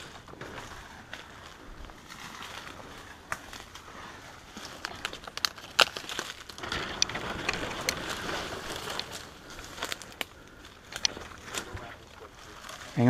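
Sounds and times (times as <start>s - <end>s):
footsteps crunching dry leaves: 0.0s - 6.6s
brushing past dry palm fronds: 0.0s - 13.0s.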